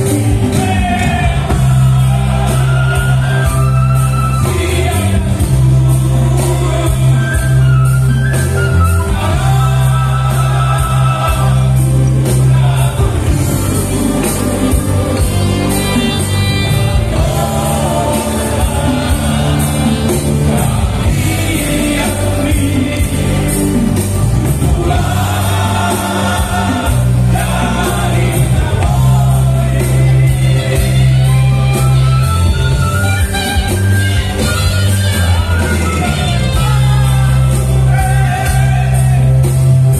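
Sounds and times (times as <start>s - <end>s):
men singing together: 0.0s - 32.0s, 35.2s - 39.9s
guitar: 0.0s - 39.9s
steady bass line: 0.0s - 39.9s
saxophone: 1.4s - 12.2s, 13.0s - 21.2s, 29.8s - 39.9s.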